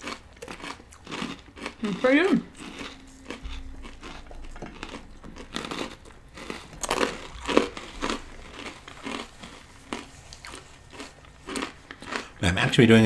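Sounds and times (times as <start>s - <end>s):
chewing and crunching: 0.0s - 13.0s.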